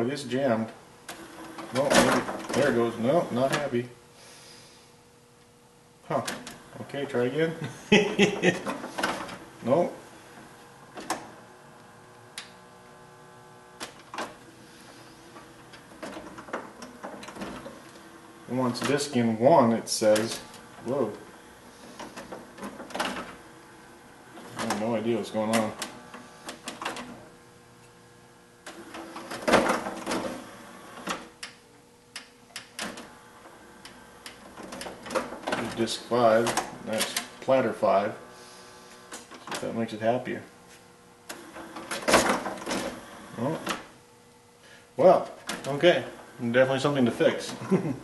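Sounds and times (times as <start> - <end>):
faint steady hum: 0.0 - 48.0
cd changer clicks: 28.6 - 33.1.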